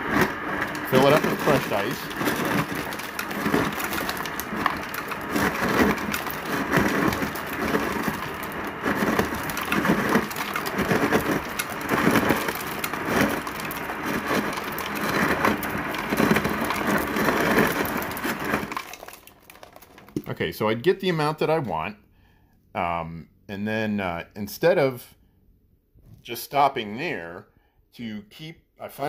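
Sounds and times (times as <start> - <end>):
crushed ice pouring into a cup: 0.0 - 20.4
ice crusher running: 0.0 - 20.4.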